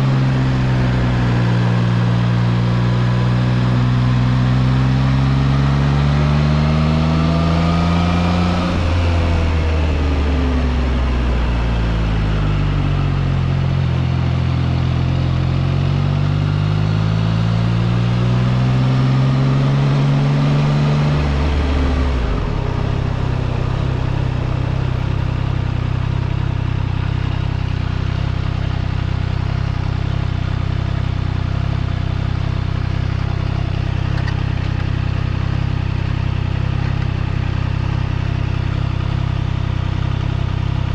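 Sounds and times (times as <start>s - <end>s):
motorcycle engine revving and idling: 0.0s - 40.9s.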